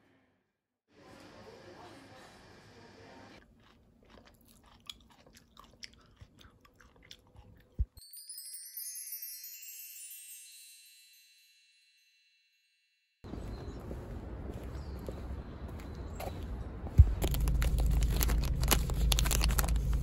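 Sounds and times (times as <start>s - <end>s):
chewing clicks: 3.4s - 8.0s, 17.0s - 20.0s
wind-chime-like shimmer: 8.0s - 13.2s.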